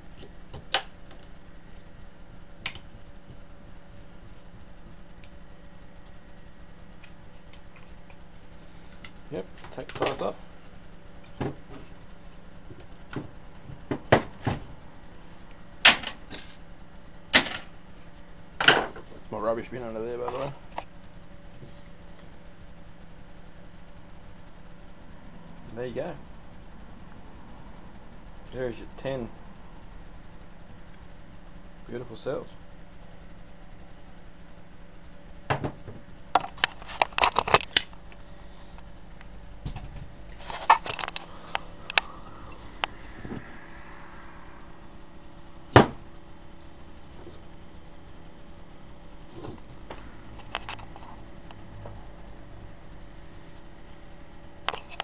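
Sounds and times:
knock on workbench: 35.5s - 35.9s, 45.8s - 46.0s.

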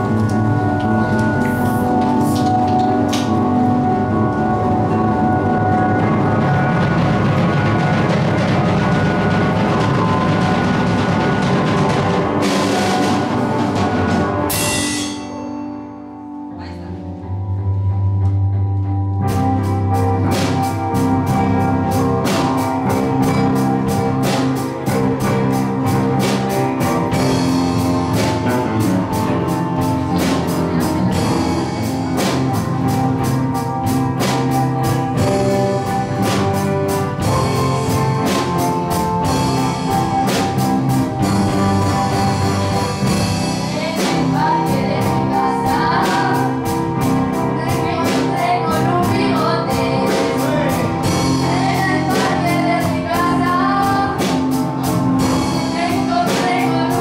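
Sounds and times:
drum kit steady beat: 0.0s - 15.7s, 19.2s - 57.0s
live blues band: 0.0s - 57.0s
girl singing: 43.7s - 46.7s, 47.4s - 50.7s, 51.4s - 54.4s, 55.5s - 57.0s.

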